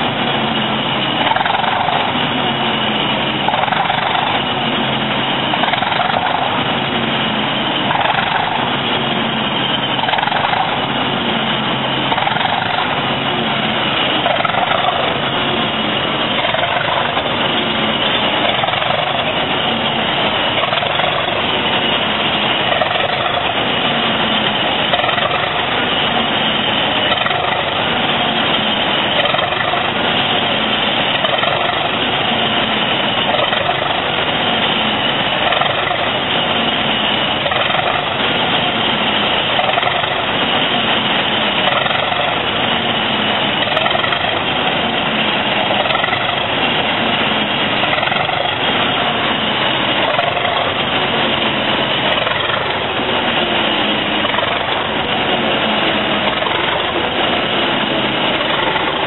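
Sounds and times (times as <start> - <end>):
diesel locomotive idling: 0.0 - 59.0.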